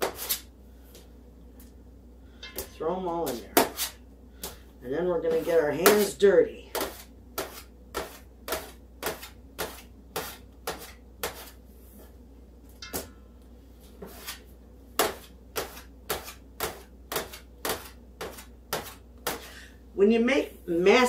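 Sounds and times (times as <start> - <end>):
bench scraper chopping dough: 0.0 - 0.5, 3.3 - 4.6, 5.2 - 11.6, 14.0 - 14.4, 15.0 - 19.6.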